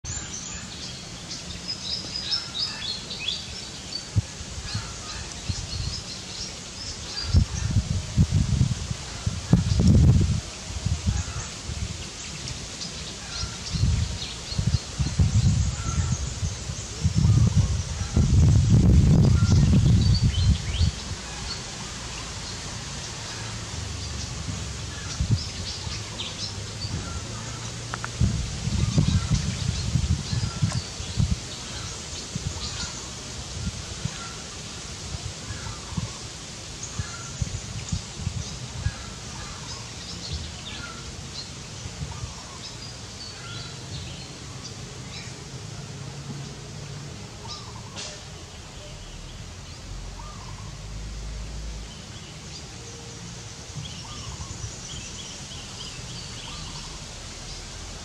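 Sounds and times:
small birds chirping: 0.0s - 45.5s, 47.4s - 51.0s, 51.7s - 58.0s
steady background hiss: 0.1s - 58.0s.

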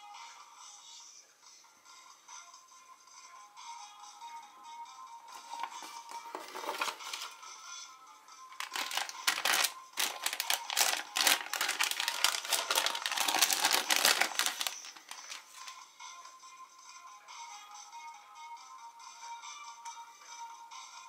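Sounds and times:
foil packet crinkling: 5.4s - 7.4s, 8.6s - 15.8s.

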